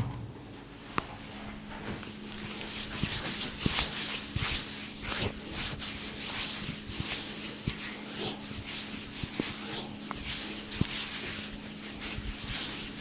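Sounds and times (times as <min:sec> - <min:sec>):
hands rubbing in massage strokes: 0:01.4 - 0:13.0.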